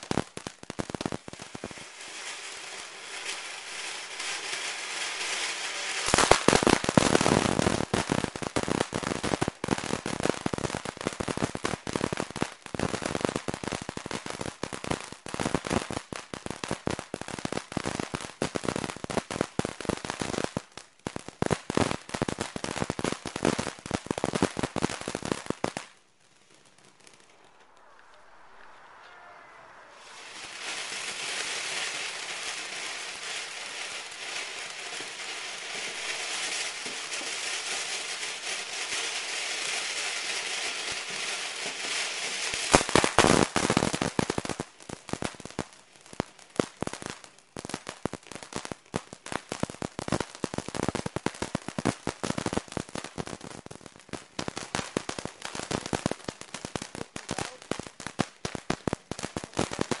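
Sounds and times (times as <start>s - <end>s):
firework fountain hissing: 0.0s - 10.4s, 21.9s - 45.5s
firework crackling: 0.0s - 60.0s.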